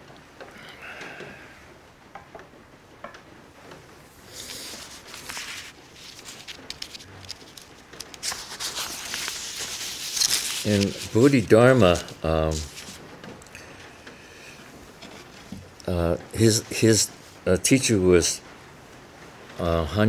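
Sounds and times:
soft rustling: 0:03.7 - 0:17.4.

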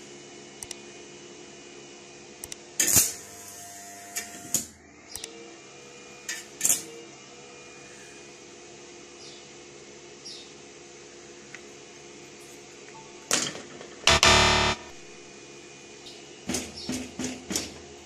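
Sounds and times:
steady hum: 0:14.1 - 0:15.3.

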